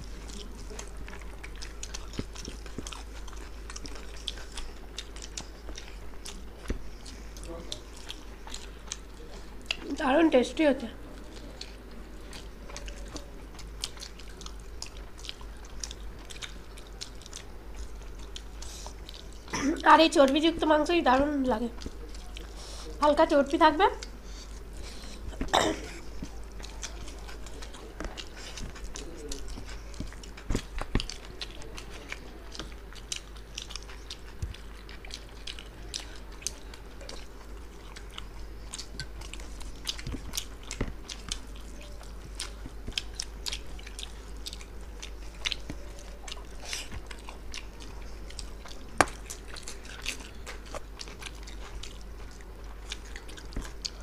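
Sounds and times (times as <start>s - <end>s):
chewing and lip-smacking: 0.0s - 54.0s
steady low hum: 0.0s - 54.0s.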